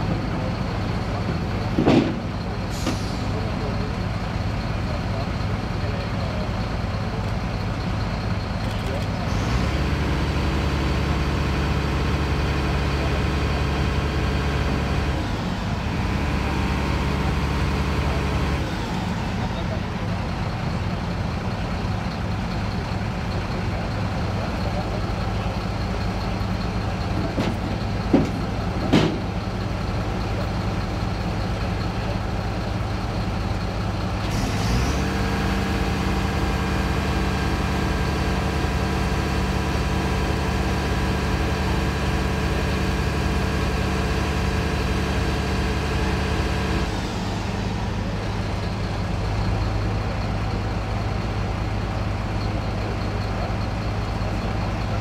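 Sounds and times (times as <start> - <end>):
heavy vehicle engine running: 0.0 - 55.0
sharp knocks: 1.8 - 2.3, 27.4 - 29.3.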